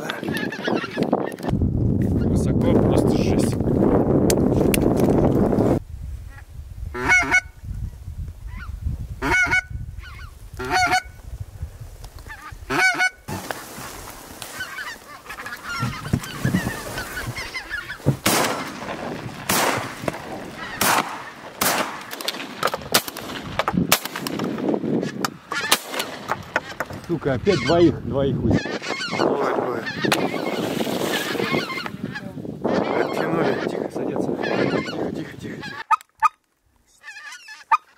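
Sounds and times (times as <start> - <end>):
geese honking: 0.2 - 1.4, 7.0 - 7.5, 8.5 - 11.2, 12.2 - 22.1, 25.0 - 37.9.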